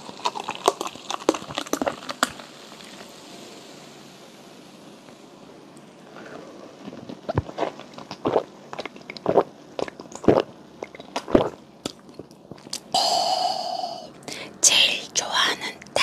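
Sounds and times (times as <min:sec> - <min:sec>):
person gulping soda: 0:00.0 - 0:02.4, 0:06.2 - 0:14.1
wet mouth clicks: 0:08.3 - 0:12.0.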